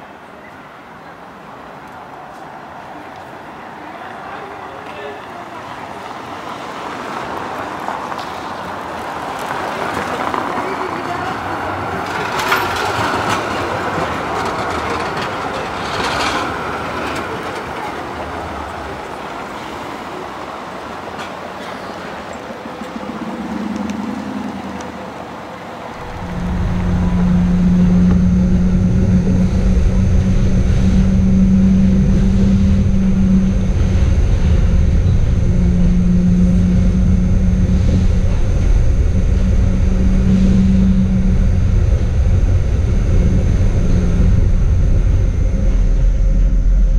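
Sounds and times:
tram rolling past on track: 0.0s - 46.9s
rail clicks: 1.7s - 25.3s
tram interior rumble and hum: 5.6s - 46.9s.

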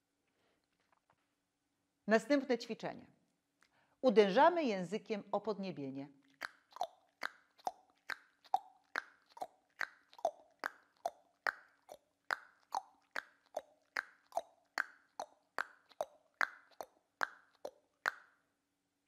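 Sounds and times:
tongue clicks: 6.2s - 18.4s.

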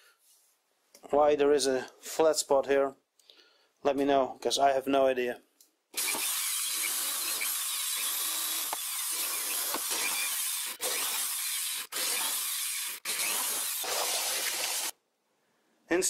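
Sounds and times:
electric drill boring wood: 6.0s - 14.9s.

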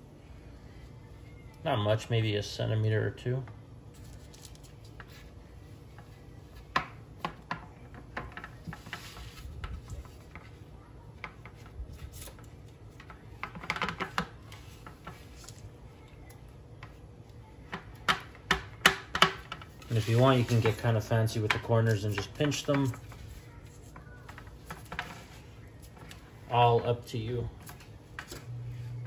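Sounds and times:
parchment paper rustling: 3.9s - 6.7s, 7.9s - 17.6s, 19.3s - 29.0s.

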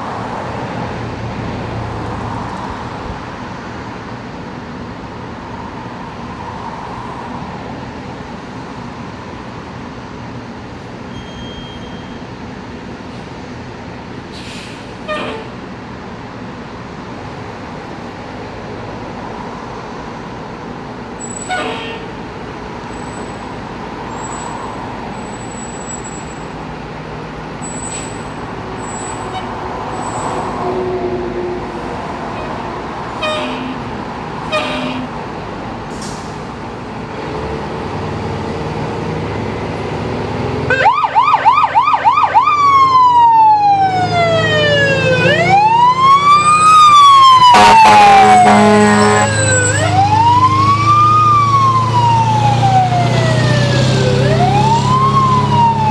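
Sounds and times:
fire engine running: 0.0s - 55.9s
siren yelping and wailing: 40.7s - 55.9s
air horn blast: 47.4s - 50.0s.

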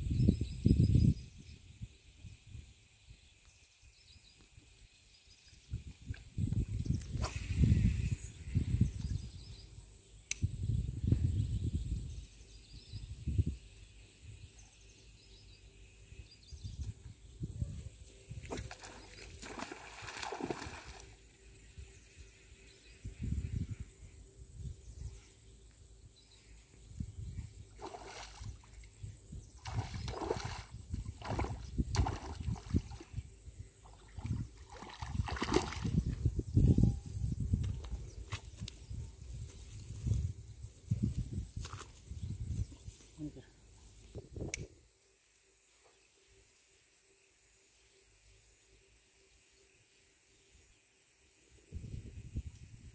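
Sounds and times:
sharp click: 10.3s - 10.5s
fish thrashing in water: 18.5s - 21.1s, 34.2s - 36.0s.

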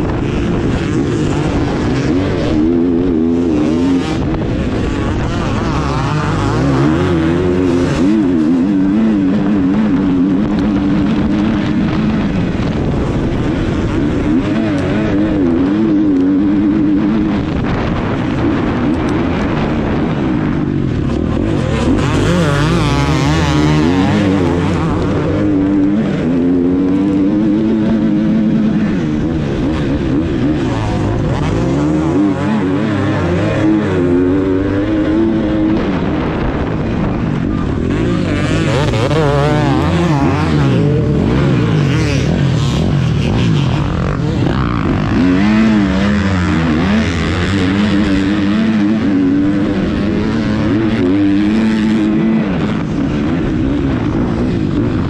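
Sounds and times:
motocross engine revving: 0.0s - 55.0s.

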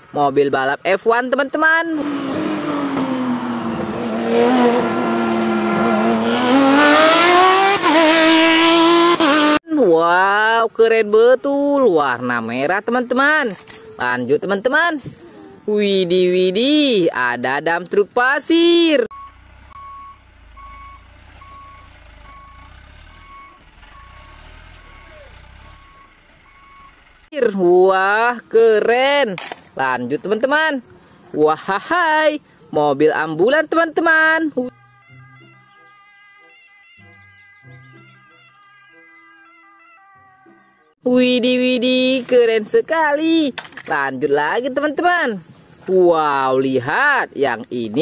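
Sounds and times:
race car engine revving: 2.0s - 9.6s, 22.2s - 27.3s
truck engine running: 19.1s - 27.3s
truck reversing alarm beeping: 19.1s - 27.4s, 34.7s - 40.8s.

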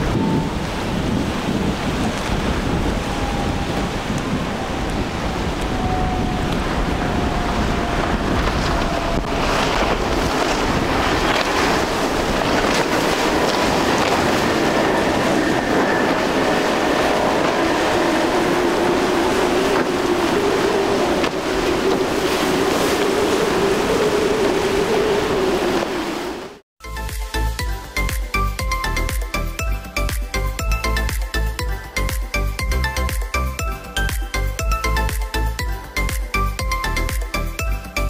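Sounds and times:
hiss of wake and surf: 0.0s - 26.6s
outboard motor whine: 0.0s - 26.6s
wind buffeting microphone: 0.0s - 26.6s.

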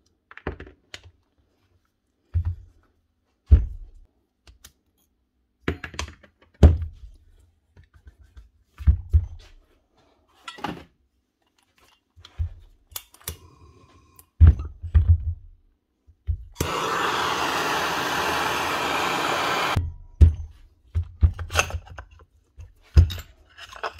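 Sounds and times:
gas torch hissing: 16.6s - 19.8s.

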